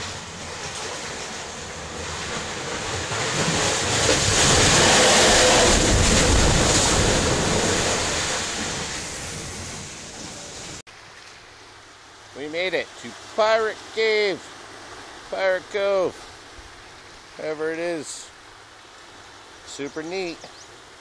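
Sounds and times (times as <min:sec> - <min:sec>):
sea waves rushing into rocks: 0:00.0 - 0:10.8
wind on microphone: 0:01.9 - 0:10.8.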